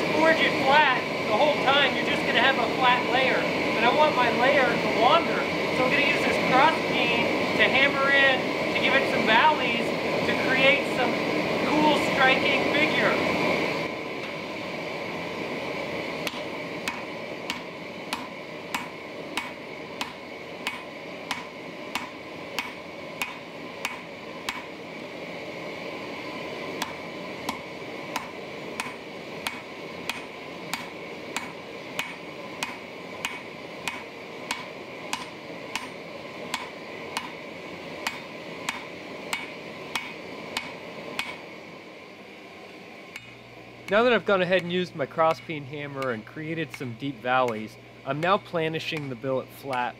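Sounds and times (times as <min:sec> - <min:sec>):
hammer striking hot steel on anvil: 0:16.2 - 0:24.8, 0:26.8 - 0:41.5, 0:43.1 - 0:49.9.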